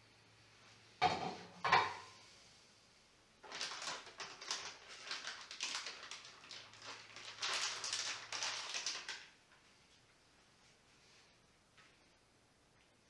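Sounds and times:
gloved hands rustling plastic packet: 0:03.4 - 0:09.6.

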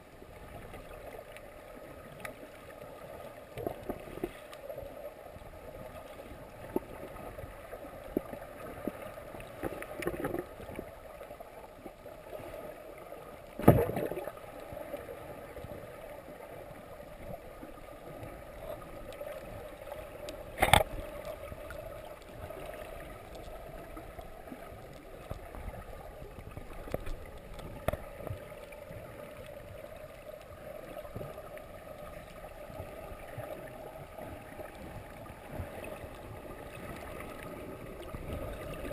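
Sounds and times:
muffled underwater hiss: 0:00.3 - 0:13.6.

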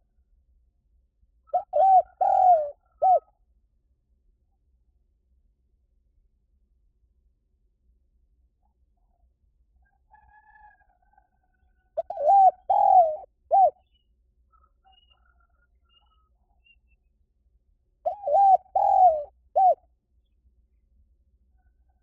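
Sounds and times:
dove cooing: 0:01.5 - 0:03.3, 0:12.0 - 0:13.8, 0:18.0 - 0:19.8.

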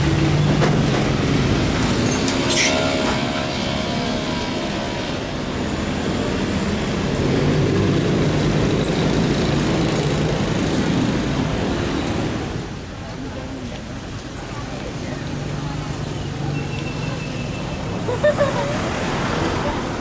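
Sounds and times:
street traffic: 0:00.0 - 0:20.0.

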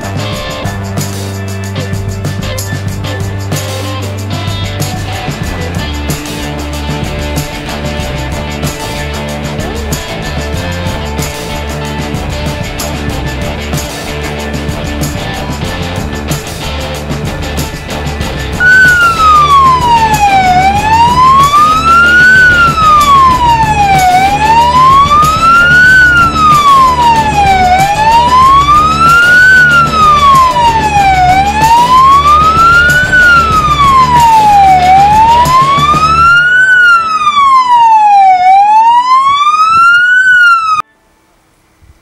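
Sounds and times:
fire engine siren wailing: 0:18.6 - 0:40.9.

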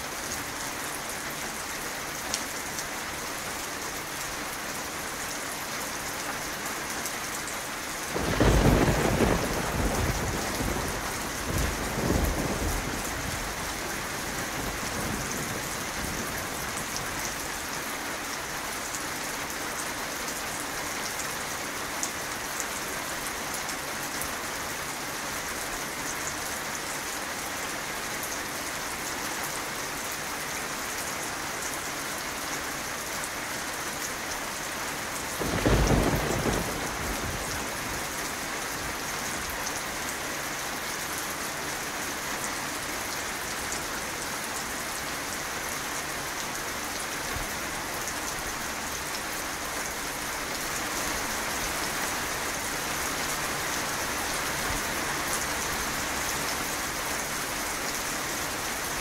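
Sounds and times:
steady rain: 0:00.0 - 0:59.0
thunderclap: 0:08.2 - 0:13.6, 0:35.4 - 0:38.0.

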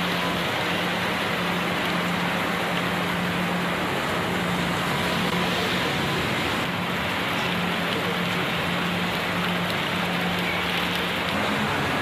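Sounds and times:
heavy rain on road and rooftops: 0:00.0 - 0:12.0.

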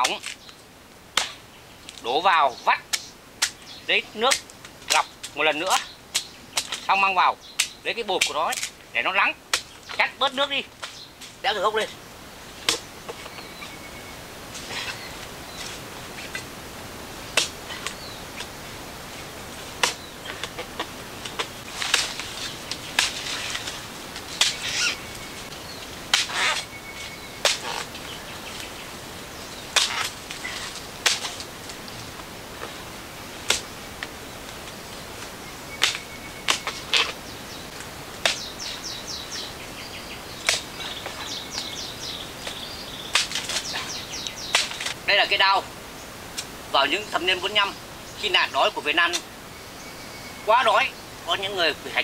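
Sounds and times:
machete chopping palm trunk: 0:01.2 - 0:01.4, 0:12.6 - 0:12.9, 0:17.3 - 0:18.5, 0:19.8 - 0:25.0, 0:26.1 - 0:26.7, 0:27.4 - 0:27.9, 0:29.7 - 0:31.5, 0:33.4 - 0:33.7, 0:35.8 - 0:37.2, 0:38.2 - 0:38.5, 0:40.4 - 0:41.2, 0:42.5 - 0:45.0.

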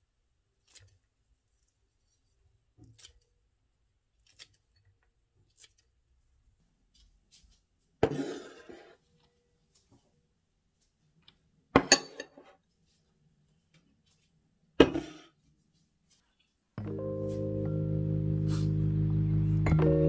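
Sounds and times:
ceramic bowls clattering on table: 0:11.8 - 0:12.5.

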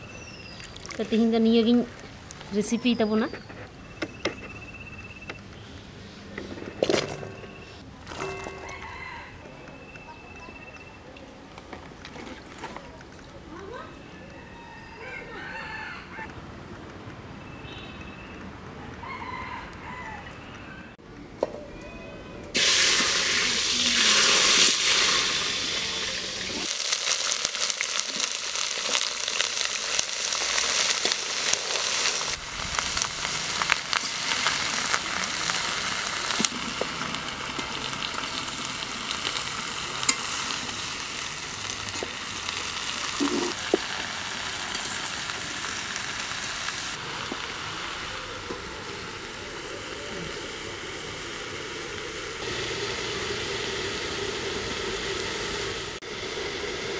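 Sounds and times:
vegetables sizzling in hot oil: 0:22.6 - 0:56.9.

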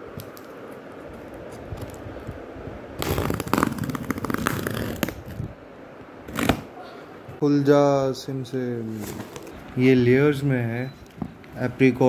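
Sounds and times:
plastic crackling and tearing: 0:03.0 - 0:05.4.

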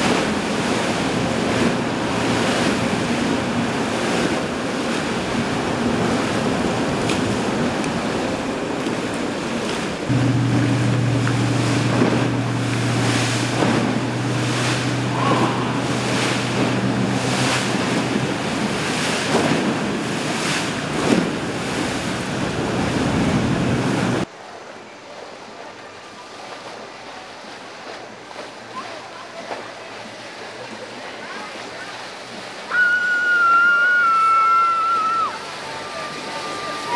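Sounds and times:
wind buffeting microphone: 0:00.0 - 0:24.2
boat engine droning: 0:00.0 - 0:36.9
water splashing against hull: 0:00.0 - 0:36.9.

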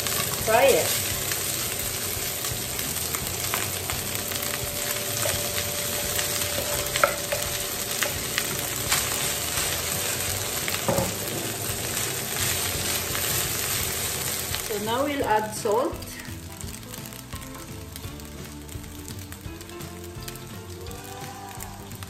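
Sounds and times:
spatula scraping and stirring: 0:00.0 - 0:14.8
rice sizzling in hot oil: 0:00.0 - 0:22.0.

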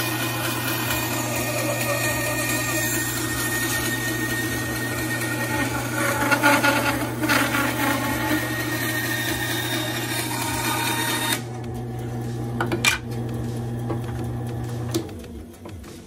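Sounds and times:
saw blade cutting wood: 0:00.0 - 0:11.5
bandsaw motor hum: 0:00.0 - 0:15.8.

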